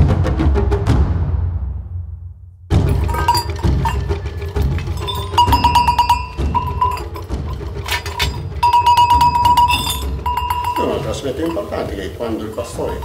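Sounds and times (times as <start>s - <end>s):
metal bells clanking together: 2.8s - 13.0s.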